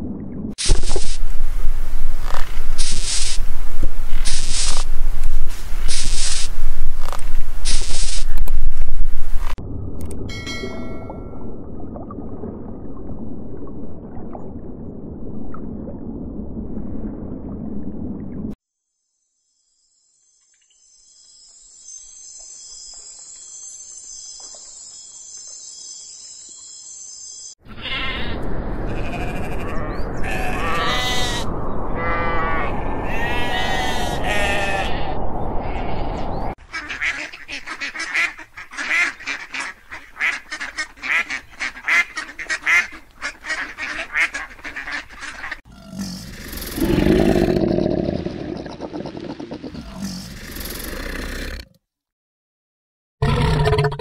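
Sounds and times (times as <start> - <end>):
short repeated calls: 4.3 - 4.8, 5.9 - 6.5
sheep and goats bleating: 27.8 - 35.2.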